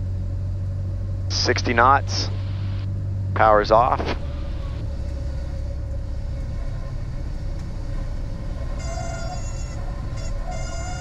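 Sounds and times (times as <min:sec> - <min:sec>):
airplane engine idling: 0:00.0 - 0:11.0
horn-like tone: 0:08.7 - 0:11.0.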